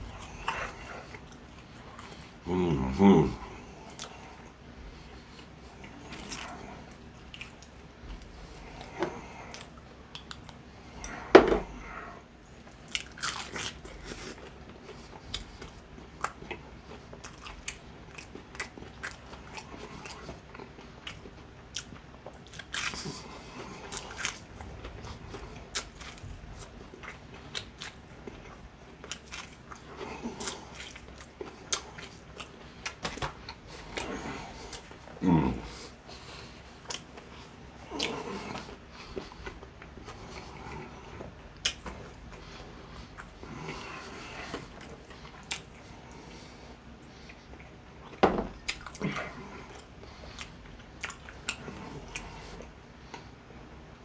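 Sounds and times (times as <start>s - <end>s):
crunching fried chicken: 12.7s - 35.0s.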